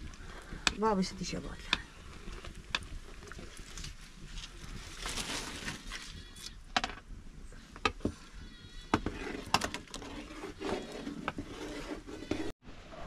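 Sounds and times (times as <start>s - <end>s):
firewood crackling: 0.0s - 12.6s.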